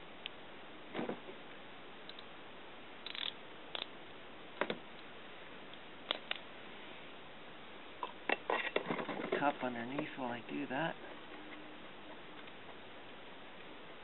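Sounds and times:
ratchet wrench clicking: 0:03.0 - 0:03.9.

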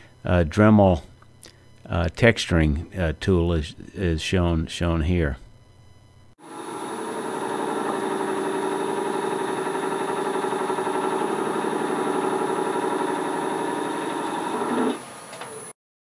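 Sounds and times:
rotary tool whirring on wood: 0:06.4 - 0:15.7.

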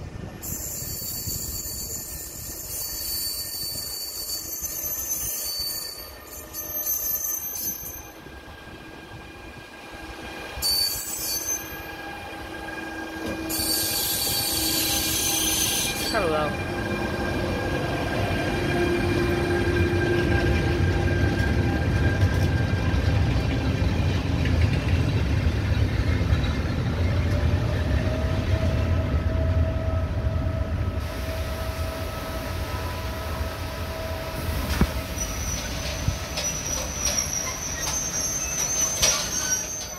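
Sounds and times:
train wheels rumbling on rail: 0:00.0 - 0:39.9
wheel squeals: 0:00.4 - 0:08.2, 0:10.6 - 0:12.2, 0:13.2 - 0:16.5, 0:34.7 - 0:39.9.

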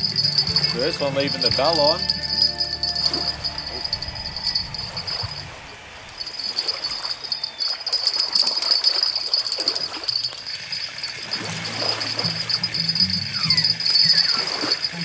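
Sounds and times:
fish splashing in water: 0:03.0 - 0:13.1, 0:13.7 - 0:15.0.

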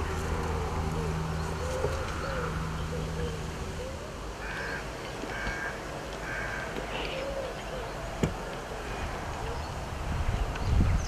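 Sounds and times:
faint bird calls: 0:00.4 - 0:10.8
crow cawing: 0:04.4 - 0:07.5.

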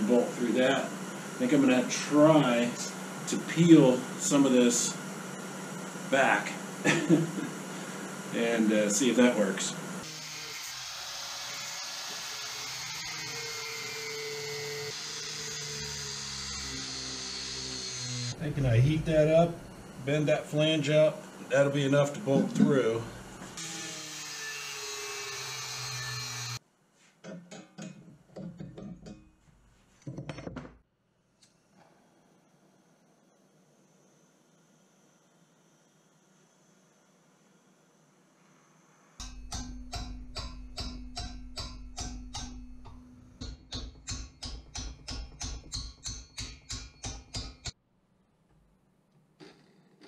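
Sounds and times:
steady hum: 0:00.0 - 0:10.0, 0:15.6 - 0:23.6
pliers bending steel tube: 0:39.2 - 0:47.7.

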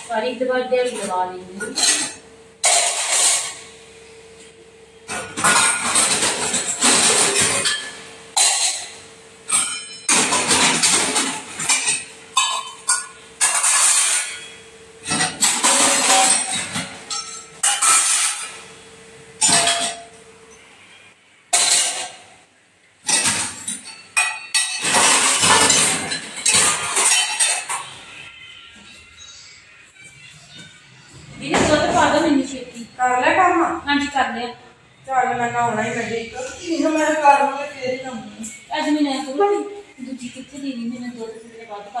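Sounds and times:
steel utensils clattering: 0:00.8 - 0:03.7, 0:05.1 - 0:18.7, 0:19.4 - 0:20.6, 0:21.5 - 0:22.2, 0:23.0 - 0:28.3.

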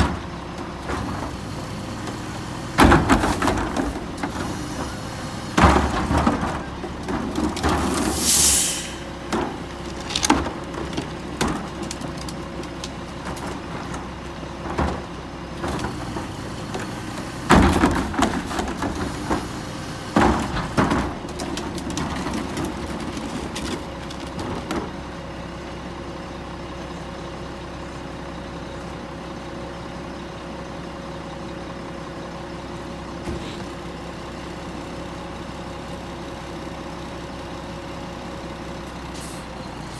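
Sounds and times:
diesel truck engine running: 0:00.0 - 0:39.9
garbage carts banging: 0:02.5 - 0:25.0
air hiss: 0:08.2 - 0:09.1.

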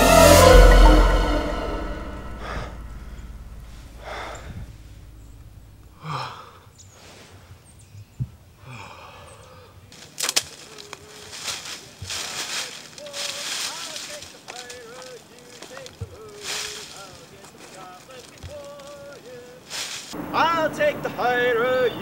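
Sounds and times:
background music: 0:00.0 - 0:05.8.

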